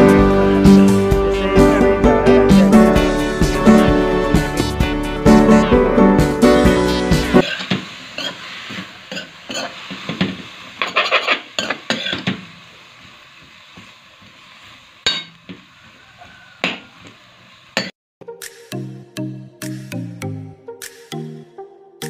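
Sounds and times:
faint sizzle: 7.4 - 17.9
metal ladle scraping a pan: 10.8 - 12.2.

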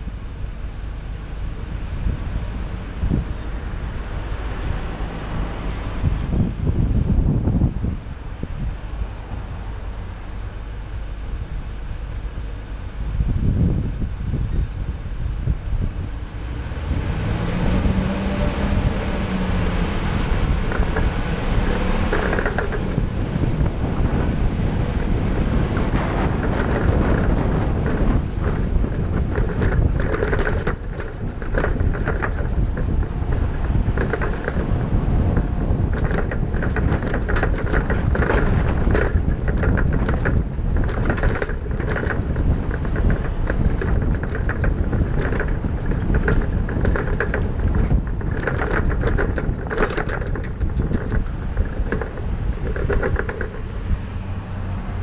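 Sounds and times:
bus engine and road noise: 0.0 - 55.0
short rattles and knocks: 16.9 - 55.0.

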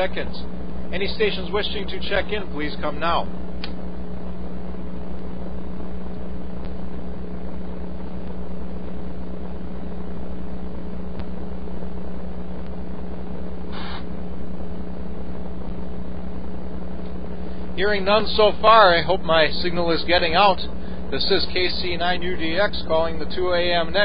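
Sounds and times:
low mains hum: 0.0 - 24.0
radio static hiss: 0.0 - 24.0
short burst of noise: 13.7 - 14.2.

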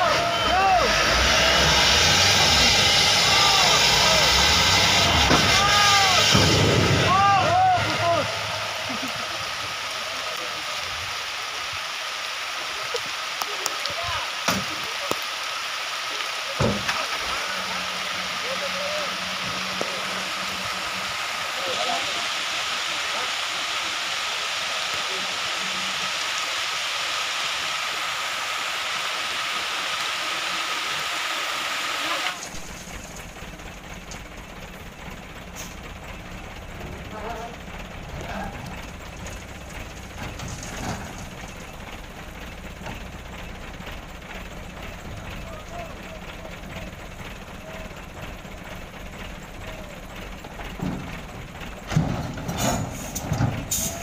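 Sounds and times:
hiss with high whine: 0.0 - 33.4
diesel truck engine rumbling: 0.0 - 54.0
truck dropping with heavy thump: 5.2 - 7.2, 16.6 - 17.1, 50.6 - 54.0.

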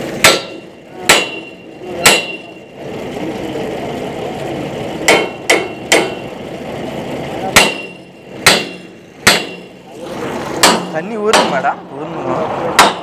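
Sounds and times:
engine hum: 0.0 - 13.0
hammer striking steel pipe: 0.2 - 2.6, 5.0 - 6.3, 7.5 - 9.8, 10.6 - 11.7, 12.8 - 13.0.

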